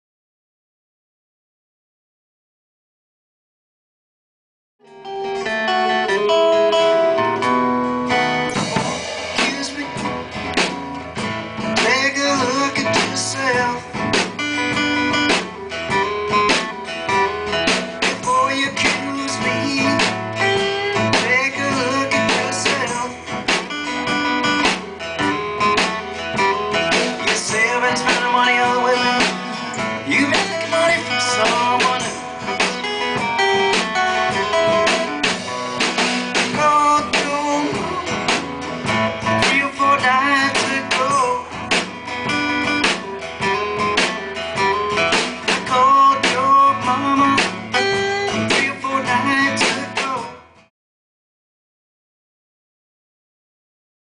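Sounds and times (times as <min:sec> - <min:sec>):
lead guitar: 0:04.8 - 0:50.7
rhythm guitar: 0:04.8 - 0:50.7
drum kit steady beat: 0:07.4 - 0:50.4.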